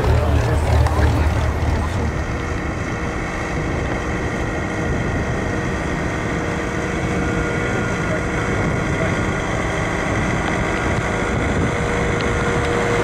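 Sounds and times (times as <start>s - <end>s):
propeller plane engines droning: 0.0s - 13.0s
wind rumbling on microphone: 0.0s - 13.0s.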